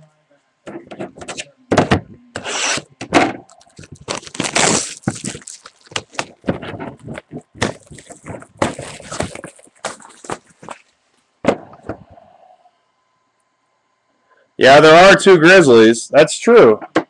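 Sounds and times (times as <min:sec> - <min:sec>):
plastic wrap crackling and tearing: 0:03.4 - 0:11.0.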